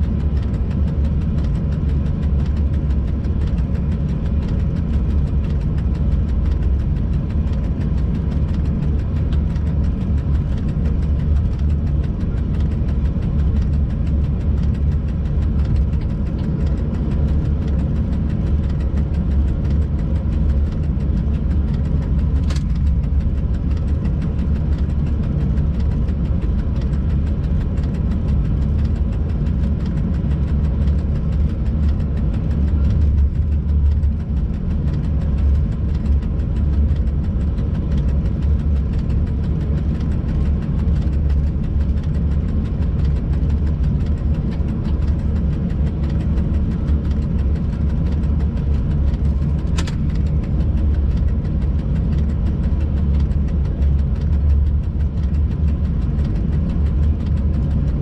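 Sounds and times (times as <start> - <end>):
faint humming tones: 0.0 - 58.0
locomotive engine rumble: 0.0 - 58.0
sharp click: 49.2 - 50.3.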